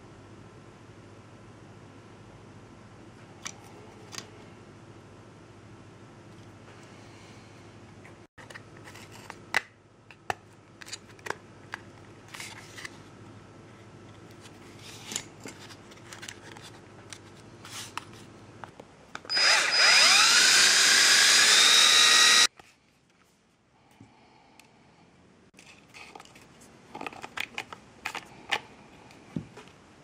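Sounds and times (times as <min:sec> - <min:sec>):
small power tool running: 0:19.3 - 0:22.5.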